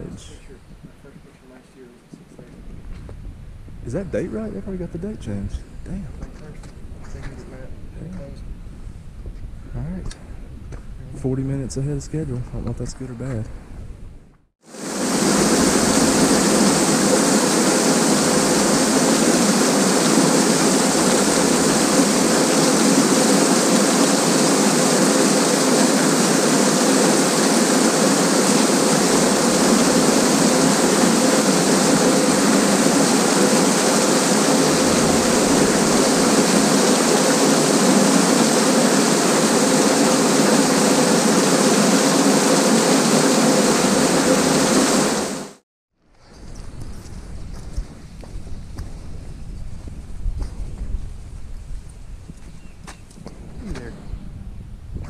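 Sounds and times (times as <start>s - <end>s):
rushing water: 14.7s - 45.6s.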